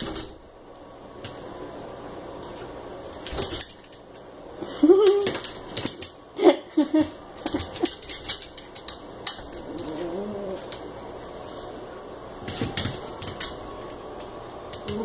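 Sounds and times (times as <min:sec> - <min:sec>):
puppy claws clicking and scratching: 0:02.4 - 0:04.3, 0:04.9 - 0:06.2, 0:07.0 - 0:11.1, 0:12.4 - 0:15.0
low-pitched puppy sound: 0:09.7 - 0:10.8.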